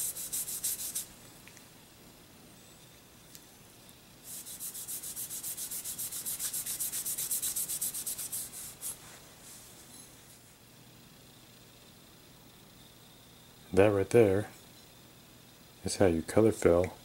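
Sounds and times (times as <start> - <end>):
cotton pad rubbing on steel: 0.0 - 1.1, 4.2 - 9.0.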